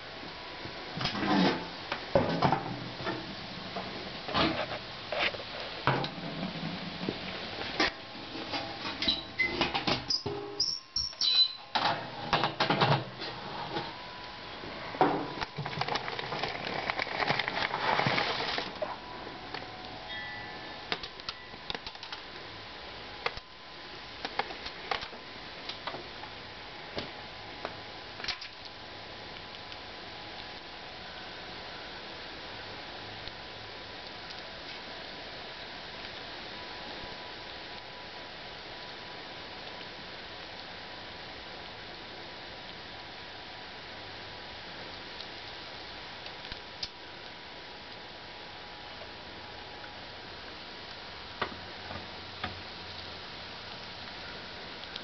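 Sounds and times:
steady hiss: 0.0 - 55.0
objects knocking and scraping: 1.0 - 3.3.

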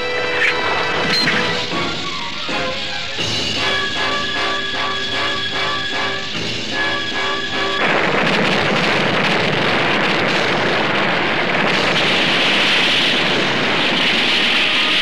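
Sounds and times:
music: 0.0 - 15.0
cartoon explosion rumble: 7.8 - 15.0.

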